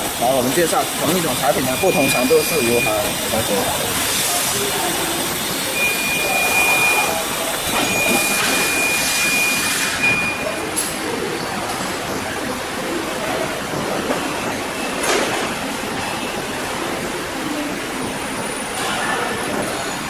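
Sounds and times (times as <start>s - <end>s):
conveyor machine noise: 0.0s - 20.0s
high steady tone: 0.6s - 10.7s.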